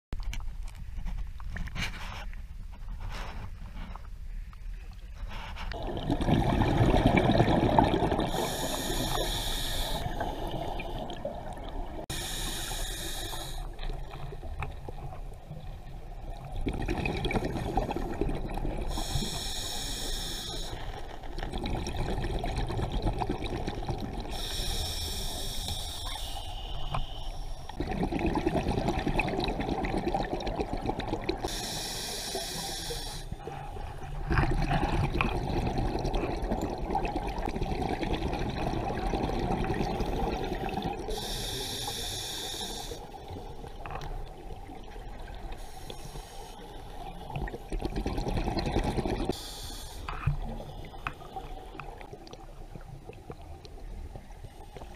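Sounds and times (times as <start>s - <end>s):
exhale bubbling underwater: 5.8s - 32.7s, 33.3s - 54.9s
regulator inhale hiss: 8.3s - 11.0s, 12.1s - 13.9s, 18.9s - 21.0s, 24.3s - 27.8s, 31.5s - 33.6s, 41.0s - 43.2s, 45.5s - 47.1s, 49.3s - 51.5s.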